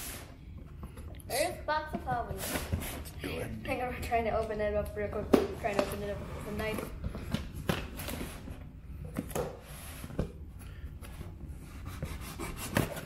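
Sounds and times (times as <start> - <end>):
hands rubbing cardboard: 11.2 - 13.0.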